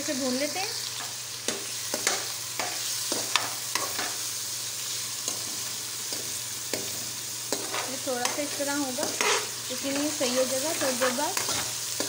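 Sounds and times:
chicken sizzling in hot oil: 0.0s - 12.0s
steel spoon scraping a pan: 5.2s - 12.0s.

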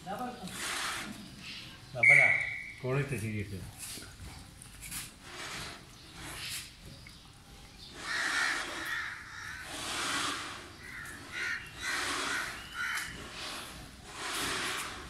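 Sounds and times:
crows cawing: 8.0s - 9.8s, 10.8s - 13.6s.

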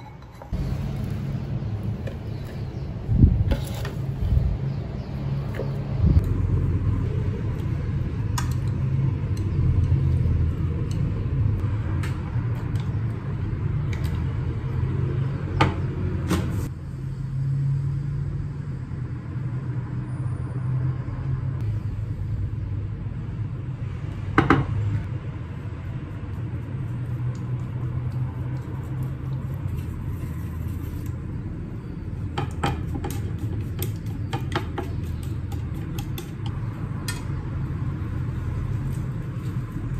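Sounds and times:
utensils clicking and tapping: 7.5s - 11.2s, 32.4s - 37.4s.

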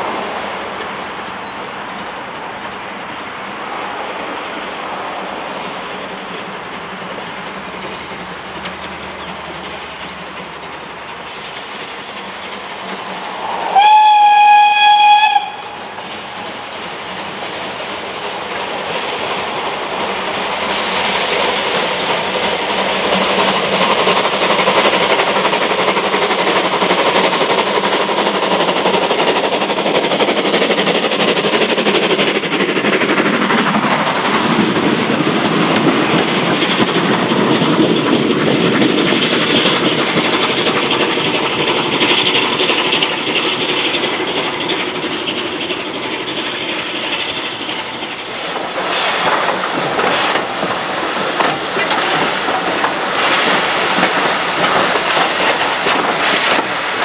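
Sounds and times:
train running noise: 0.0s - 57.0s
steam whistle: 13.6s - 15.8s.

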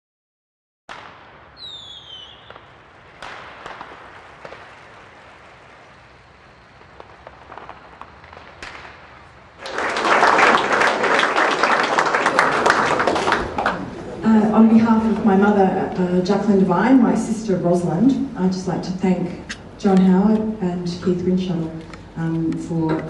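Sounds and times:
audience applause: 9.6s - 15.3s.

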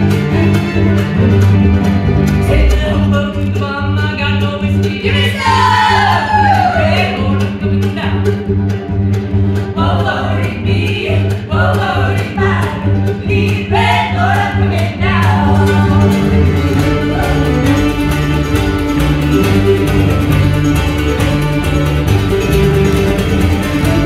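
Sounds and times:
cello: 0.0s - 24.0s
upright bass: 0.0s - 24.0s
voices singing: 4.9s - 8.3s, 9.8s - 18.1s
fiddle: 5.3s - 24.0s.

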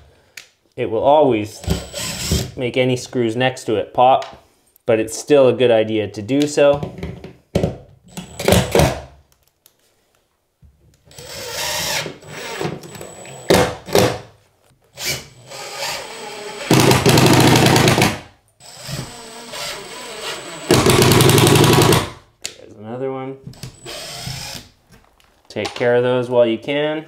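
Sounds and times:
impact driver driving screws: 15.0s - 22.1s, 23.6s - 24.7s.

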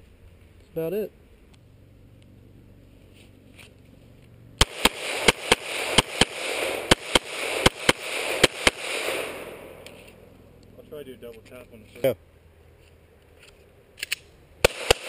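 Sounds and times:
pistol shots: 4.6s - 10.2s, 14.1s - 15.0s.

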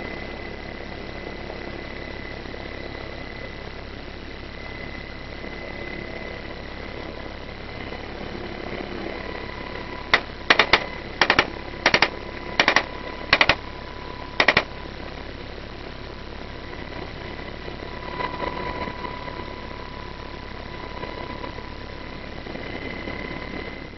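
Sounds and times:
helicopter drone from inside cabin: 0.0s - 23.9s
thin steady whine: 0.0s - 23.9s
sharp cracks: 10.1s - 13.6s, 14.4s - 14.7s.

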